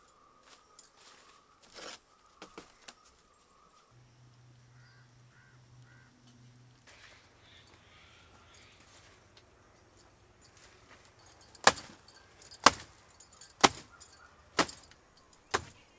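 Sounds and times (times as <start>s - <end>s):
faint bird calls: 0.0s - 9.3s
low steady hum: 3.9s - 15.9s
baskets knocking and rustling: 8.6s - 15.9s.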